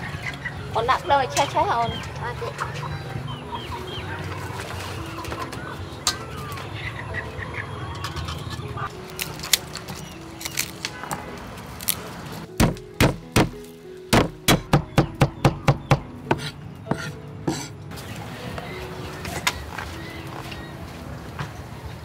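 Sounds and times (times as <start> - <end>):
knife chopping on wooden board: 12.6 - 13.6, 14.2 - 17.7.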